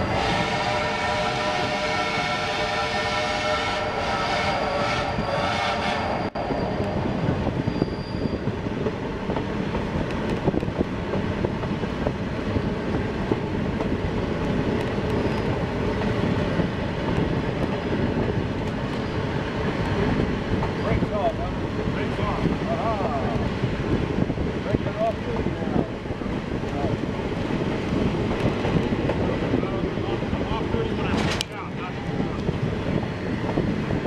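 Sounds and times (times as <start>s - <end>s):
steam locomotive whistle: 0.0s - 7.0s
train cars rumbling on track: 0.0s - 34.0s.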